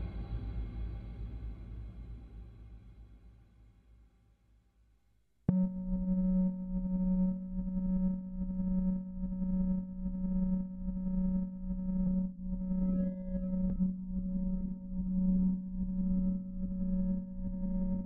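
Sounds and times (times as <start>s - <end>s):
faint low rumble: 5.5s - 18.0s
low electronic drone: 5.5s - 18.0s.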